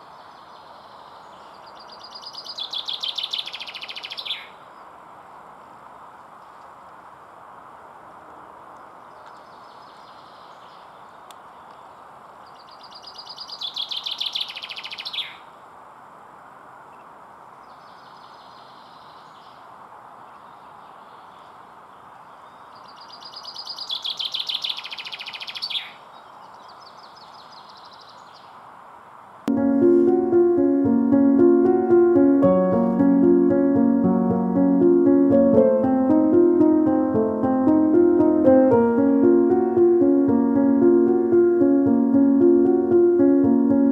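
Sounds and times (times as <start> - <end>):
chaffinch singing: 0.2 - 4.6.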